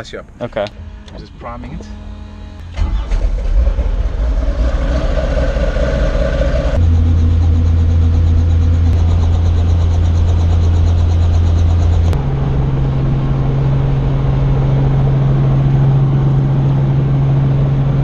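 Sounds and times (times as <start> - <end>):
helicopter engine and rotor drone: 5.5 - 18.0.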